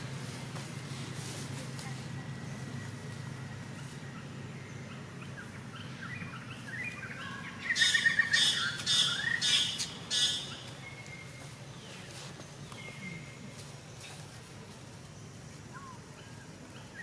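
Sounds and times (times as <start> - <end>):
bird chirping: 2.3 - 14.3
harsh bird calls: 3.7 - 14.2.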